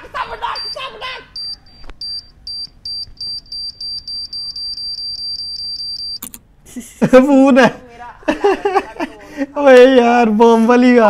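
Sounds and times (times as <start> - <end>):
high electronic beeping: 0.4 - 6.2
sharp click: 6.2 - 6.5.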